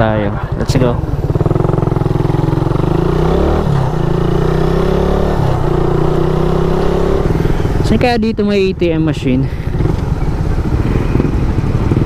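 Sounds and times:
motorcycle engine pulling away: 0:00.6 - 0:07.9, 0:09.7 - 0:12.0.

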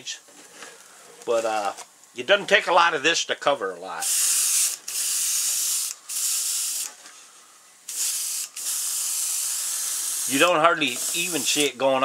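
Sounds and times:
airbrush hissing: 0:04.0 - 0:07.0, 0:07.9 - 0:11.8.

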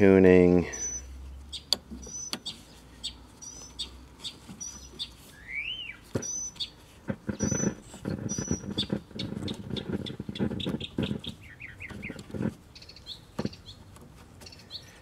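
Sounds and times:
small birds chirping: 0:00.0 - 0:15.0
rough scratchy noise: 0:06.8 - 0:12.8.

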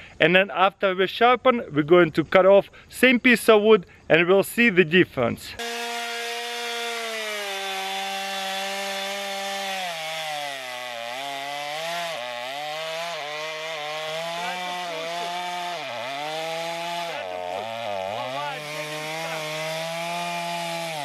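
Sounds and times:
chainsaw cutting log: 0:05.6 - 0:21.0.

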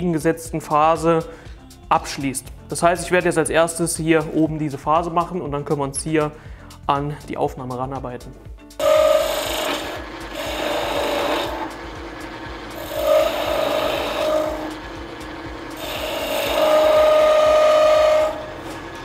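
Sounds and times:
chisel scraping spinning wood: 0:08.8 - 0:19.0.

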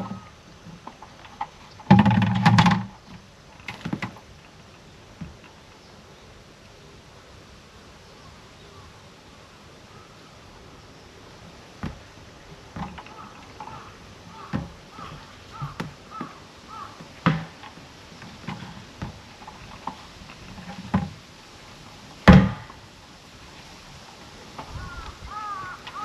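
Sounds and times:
equipment knocks and clunks: 0:01.8 - 0:02.9, 0:11.8 - 0:12.0, 0:14.5 - 0:16.3, 0:17.2 - 0:17.6, 0:22.3 - 0:22.8
bird calling: 0:08.0 - 0:11.3, 0:12.4 - 0:17.2, 0:24.6 - 0:26.0.

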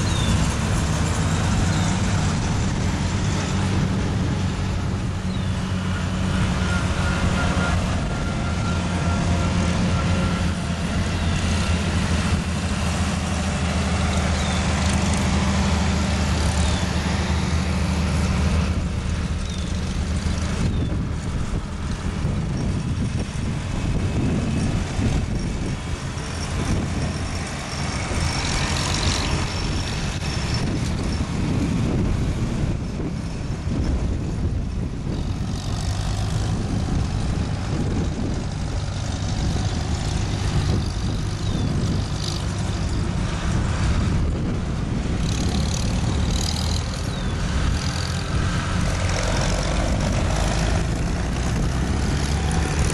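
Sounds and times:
tractor engines running: 0:00.0 - 0:52.9.

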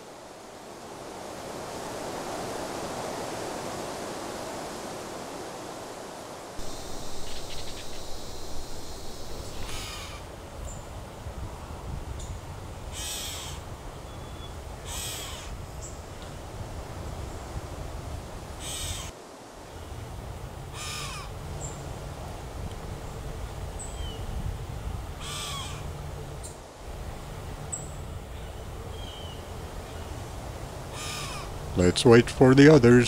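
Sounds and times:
faint high bird chirps: 0:06.6 - 0:10.2
crow cawing: 0:06.6 - 0:10.3, 0:18.6 - 0:19.1, 0:20.7 - 0:21.3, 0:25.2 - 0:25.8, 0:30.9 - 0:31.5.

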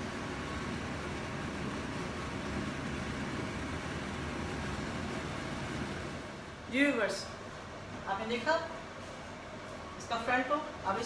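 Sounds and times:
room hum and hiss: 0:00.0 - 0:11.0.

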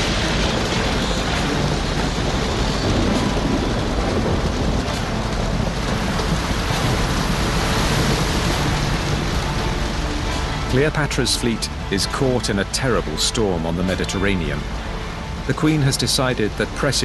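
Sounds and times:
low thunder rumble: 0:00.0 - 0:10.7
heavy rain: 0:00.0 - 0:17.0
wind: 0:00.0 - 0:17.0.

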